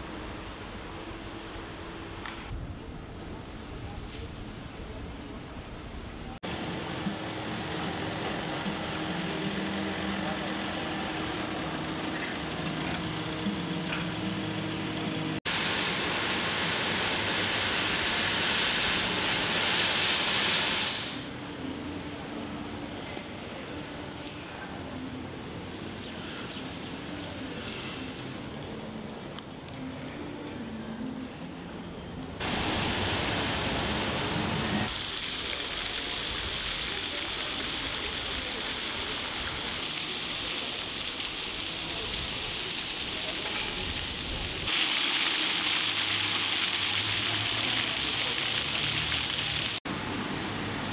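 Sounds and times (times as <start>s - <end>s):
steady outdoor hiss: 0.0s - 50.9s
rushing hiss: 15.4s - 21.4s, 32.4s - 49.8s.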